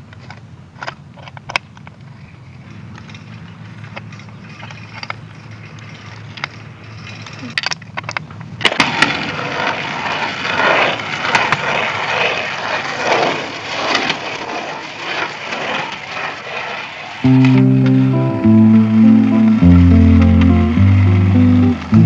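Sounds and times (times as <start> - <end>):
bicycle wheels rattling and ticking: 0.0 - 17.3
bicycle clicks: 0.0 - 17.6.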